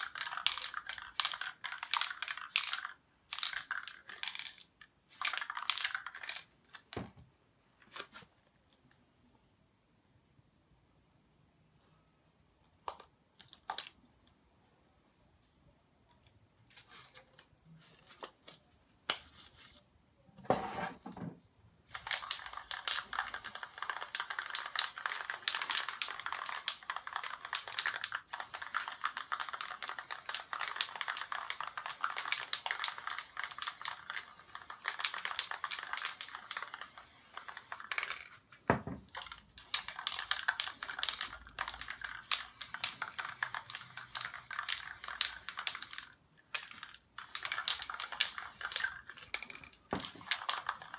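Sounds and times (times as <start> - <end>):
spray paint can hissing: 0.0 - 6.4, 21.9 - 38.2, 39.2 - 50.9.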